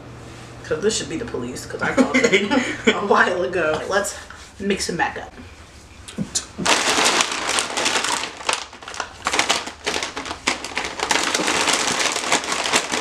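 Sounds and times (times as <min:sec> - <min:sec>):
plastic wrappers crinkling: 0:06.6 - 0:13.0.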